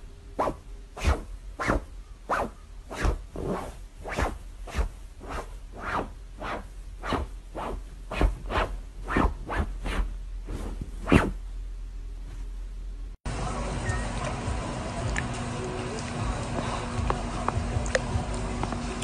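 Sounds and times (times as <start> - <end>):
short swishing strokes: 0.4 - 11.4.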